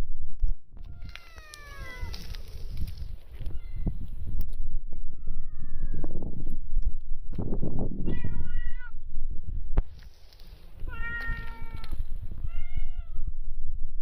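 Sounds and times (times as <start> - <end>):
cat meowing: 0.8 - 2.6, 3.4 - 4.0, 8.1 - 9.0, 10.9 - 13.3.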